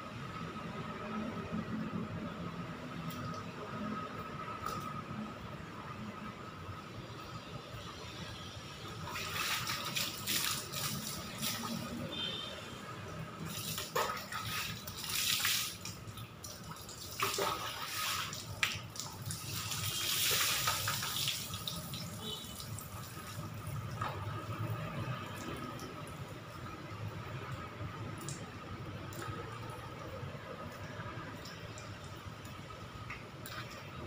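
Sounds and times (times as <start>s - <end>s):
water trickling and dripping: 2.0s - 34.0s
water pouring over a person: 8.9s - 12.2s, 13.3s - 26.2s
water splashing on concrete floor: 8.9s - 26.7s, 27.3s - 34.0s.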